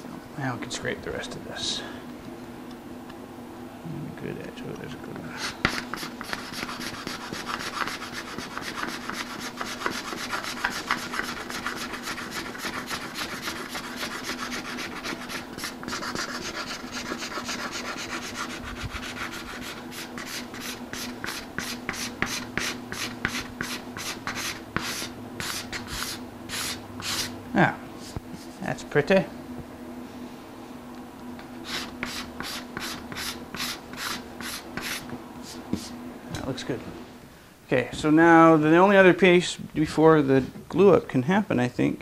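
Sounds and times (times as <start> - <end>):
card scraper scraping wood: 5.4 - 27.3, 31.6 - 35.1.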